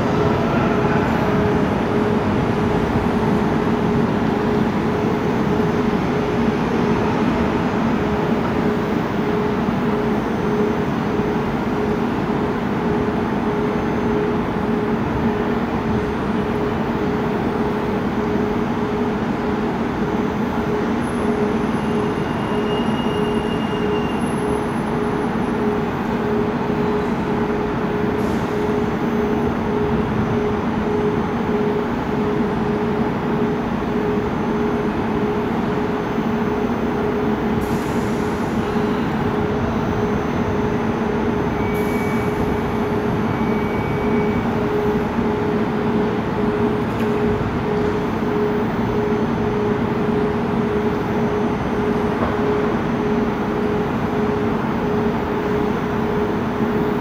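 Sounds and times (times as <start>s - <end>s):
electric train hum: 0.0s - 57.0s
faint high squeal: 21.7s - 24.8s, 41.4s - 42.6s, 43.2s - 44.5s.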